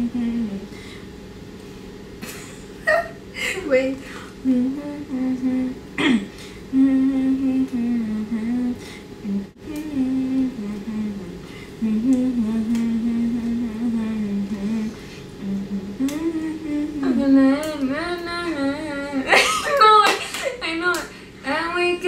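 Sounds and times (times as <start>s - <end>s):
woman humming melody: 0.0s - 0.8s, 4.4s - 19.3s.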